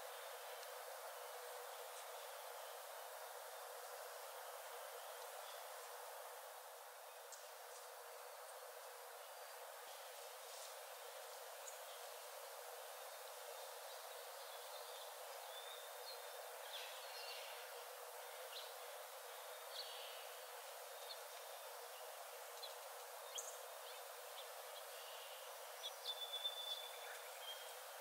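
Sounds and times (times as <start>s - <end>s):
faint forest hiss: 0.0s - 28.0s.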